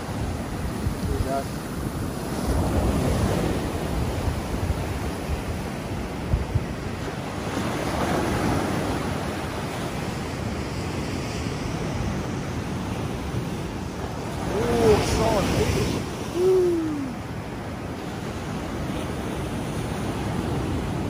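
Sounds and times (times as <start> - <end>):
ocean surf breaking on sand: 0.0 - 21.0
wind buffeting microphone: 0.0 - 21.0.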